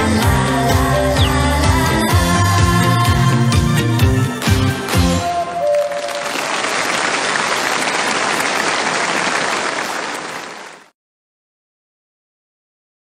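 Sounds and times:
song ending: 0:00.0 - 0:06.6
audience applauding: 0:05.6 - 0:10.9.

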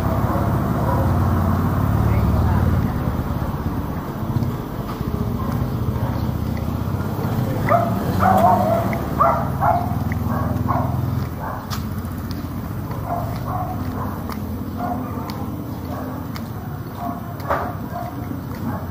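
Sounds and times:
dog barking: 0:00.0 - 0:02.0, 0:05.0 - 0:18.9
passing vehicle engine rumble: 0:00.0 - 0:18.9.

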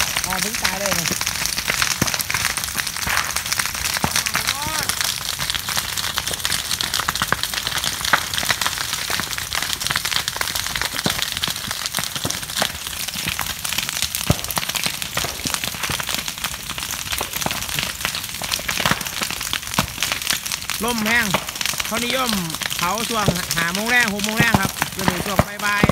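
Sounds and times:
fire crackling and popping: 0:00.0 - 0:25.9.

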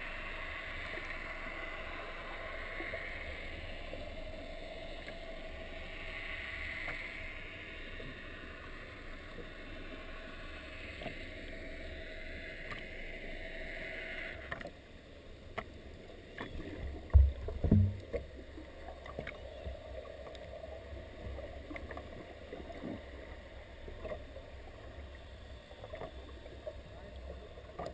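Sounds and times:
muffled underwater noise: 0:00.0 - 0:27.9
steady hiss: 0:00.0 - 0:27.9
faint clicks: 0:04.9 - 0:05.2, 0:06.6 - 0:07.2, 0:12.6 - 0:13.0, 0:14.3 - 0:14.8, 0:19.0 - 0:20.5.

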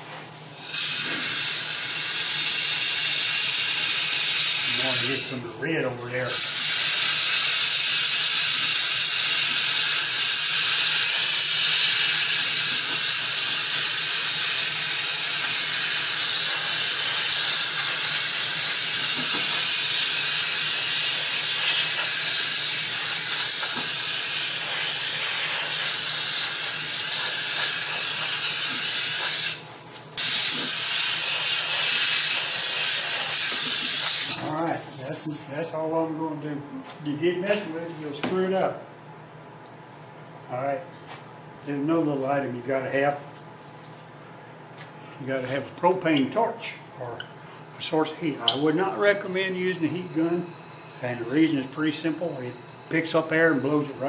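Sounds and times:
compressed air hissing: 0:00.0 - 0:36.0, 0:48.5 - 0:54.0.

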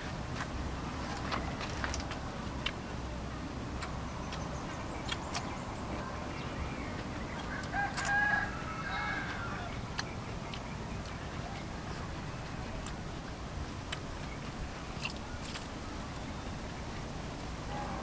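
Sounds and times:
rooster crowing: 0:07.5 - 0:09.7.

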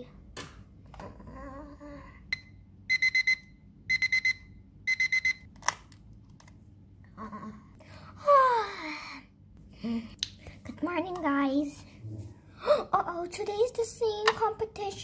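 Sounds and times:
alarm clock beeping: 0:02.3 - 0:05.5.

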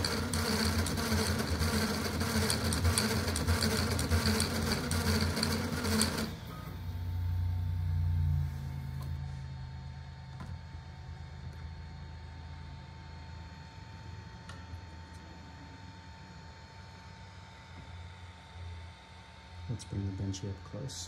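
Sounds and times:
printer motors buzzing and rattling: 0:00.0 - 0:07.2
low steady motor hum: 0:06.4 - 0:21.0.

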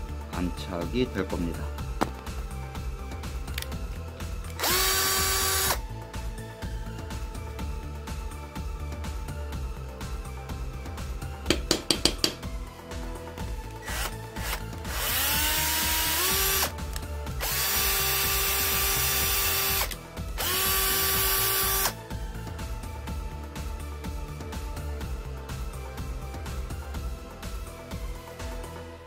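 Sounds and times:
cordless drill whining: 0:04.4 - 0:05.8, 0:13.7 - 0:16.8, 0:17.4 - 0:22.0.

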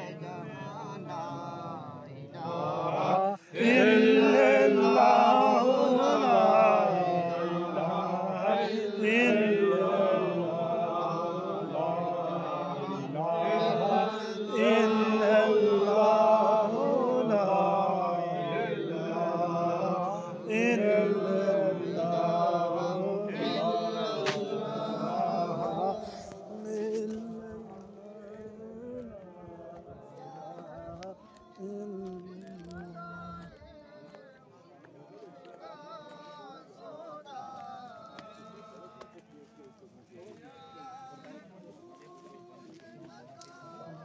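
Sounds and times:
man chanting melodically: 0:00.0 - 0:34.3.

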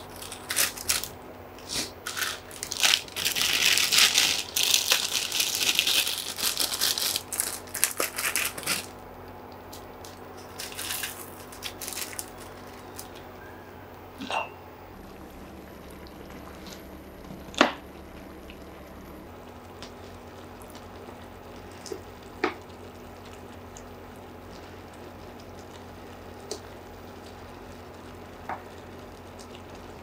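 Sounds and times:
plastic wrapper crinkling: 0:00.0 - 0:01.2, 0:01.8 - 0:13.4.

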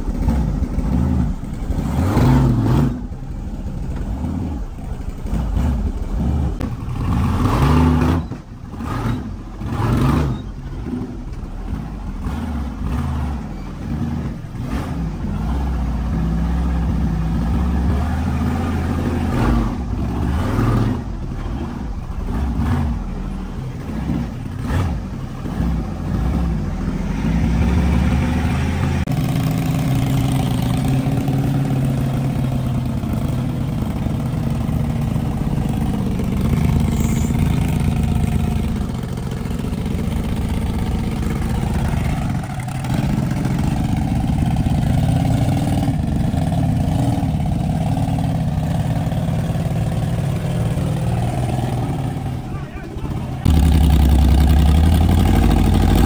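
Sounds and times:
buggy engine revving: 0:00.0 - 0:56.0.

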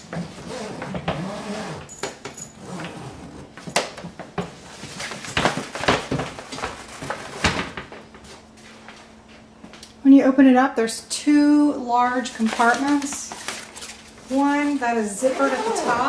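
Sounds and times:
suitcase being unzipped: 0:00.2 - 0:01.9, 0:02.6 - 0:03.6, 0:15.2 - 0:16.0.

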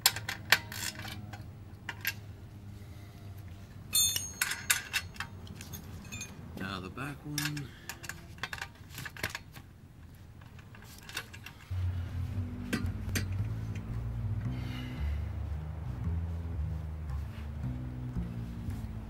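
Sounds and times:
metal tools clinking: 0:00.0 - 0:02.3, 0:03.9 - 0:06.6, 0:07.2 - 0:11.8
background music with bass: 0:11.6 - 0:19.0.

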